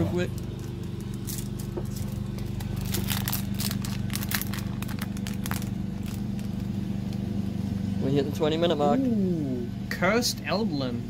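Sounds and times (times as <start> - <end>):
low hum: 0.0 - 11.0
foil wrapper crinkling: 0.3 - 6.7.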